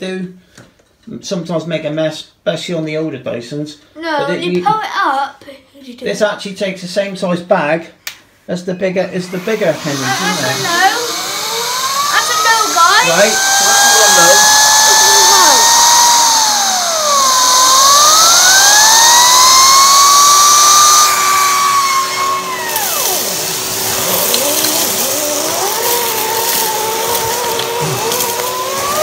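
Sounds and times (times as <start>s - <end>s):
vacuum cleaner whining: 8.7s - 29.0s.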